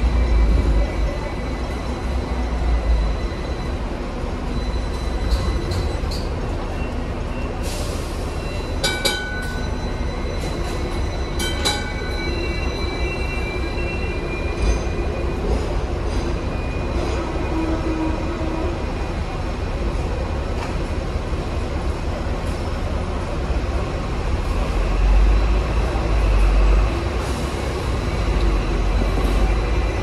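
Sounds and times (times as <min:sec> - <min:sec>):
high wheel squeal: 0:00.0 - 0:19.1
tram wheels rumbling on rails: 0:00.0 - 0:30.0.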